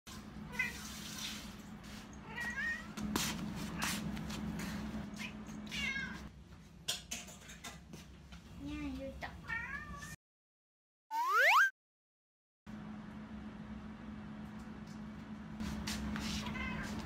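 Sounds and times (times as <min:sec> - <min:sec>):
cat meowing: 0:05.2 - 0:06.3.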